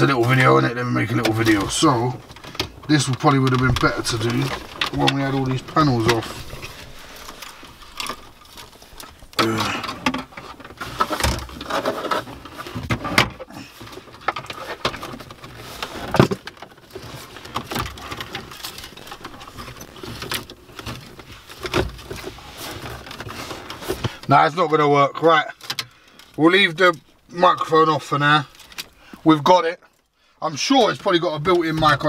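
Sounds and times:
plastic plugs clicking and rustling: 0.0s - 24.3s.

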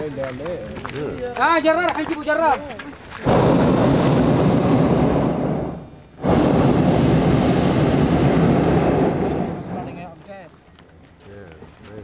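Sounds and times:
propane burner blasts: 3.2s - 10.5s.

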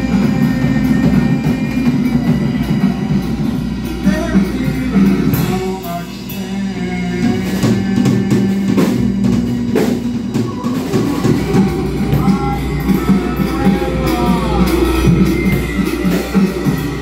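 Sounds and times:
drum kit hits: 0.0s - 17.0s
sustained low drone: 8.7s - 17.0s.

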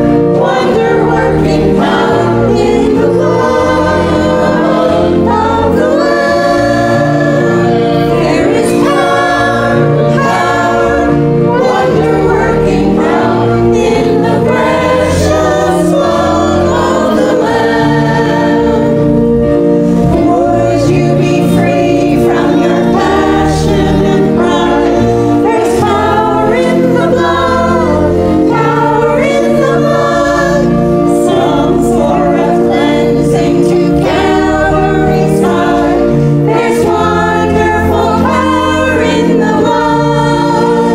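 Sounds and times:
church choir singing a hymn: 0.0s - 40.9s.

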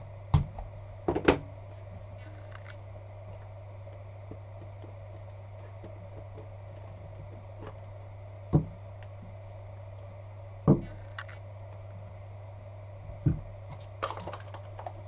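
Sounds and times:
steady low hum: 0.0s - 15.0s
cardboard box knocking on table: 10.7s - 10.9s.

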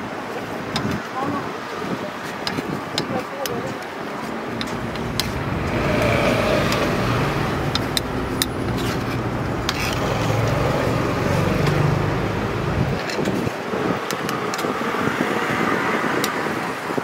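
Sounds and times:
street traffic rumble: 0.0s - 17.0s
vehicle engine hum: 3.7s - 17.0s
metal spatula tapping metal molds: 7.7s - 8.5s.

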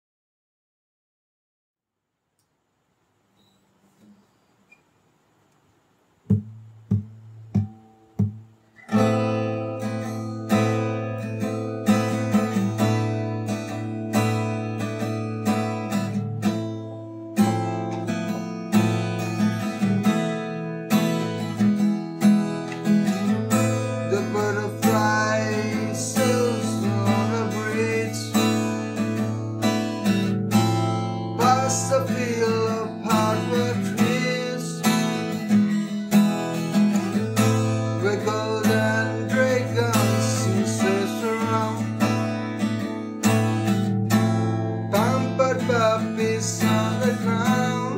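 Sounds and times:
acoustic guitar playing: 6.2s - 47.9s
man singing: 23.5s - 29.0s, 31.3s - 35.4s, 37.4s - 42.3s, 44.8s - 47.9s.

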